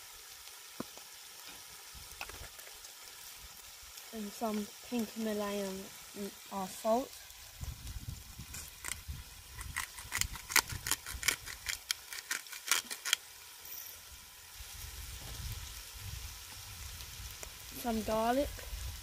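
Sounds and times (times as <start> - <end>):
meat sizzling faintly in a pot: 0.0 - 10.0, 11.8 - 19.0
salt grinder clicking: 9.6 - 13.2.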